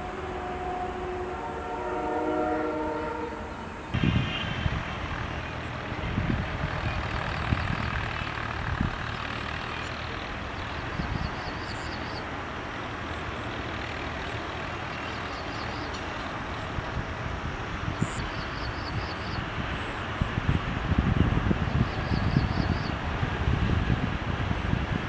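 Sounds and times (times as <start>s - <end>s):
distant tractor engines droning: 3.4s - 25.0s
wind rumble on microphone: 3.9s - 9.6s, 10.4s - 12.0s, 16.5s - 25.0s.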